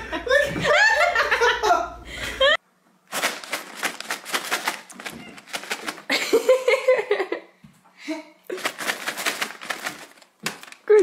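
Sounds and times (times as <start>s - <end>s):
person laughing: 0.0s - 2.6s, 6.1s - 7.5s.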